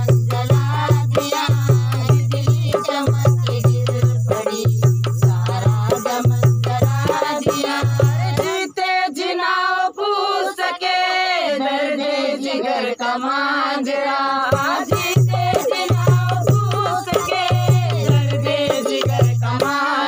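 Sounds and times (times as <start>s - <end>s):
barrel drum beating: 14.5s - 19.8s.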